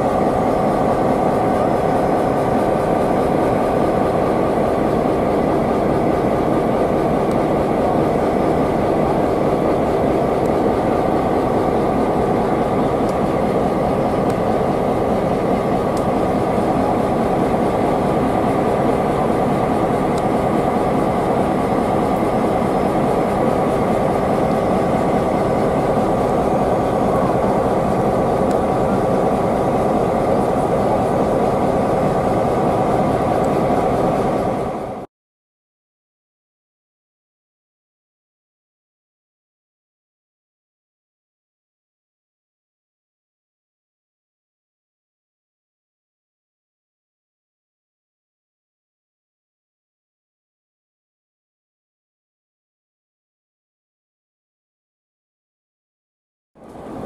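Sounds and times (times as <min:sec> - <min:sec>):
diesel locomotives idling: 0:00.0 - 0:35.1, 0:56.6 - 0:57.0.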